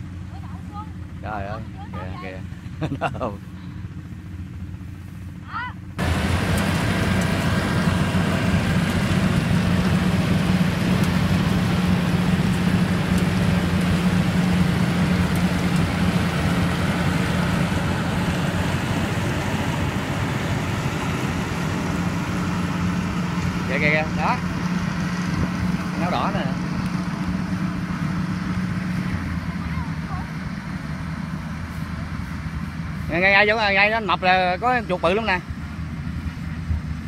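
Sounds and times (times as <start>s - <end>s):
combine harvester diesel drone: 0.0s - 37.0s
faint field sound: 0.0s - 37.0s.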